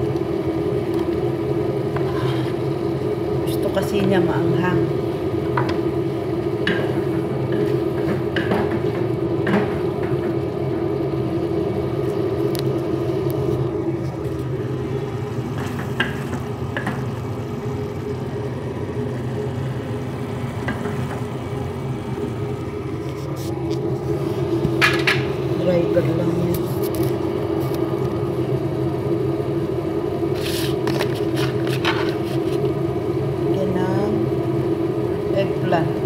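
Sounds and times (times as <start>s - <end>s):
low whirring hum: 0.0s - 36.0s
wooden spoon stirring saucepan: 30.4s - 32.7s.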